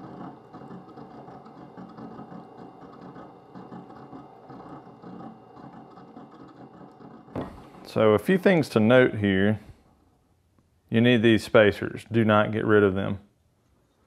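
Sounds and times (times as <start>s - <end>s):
wet sharpener motor whirring: 0.0s - 7.9s.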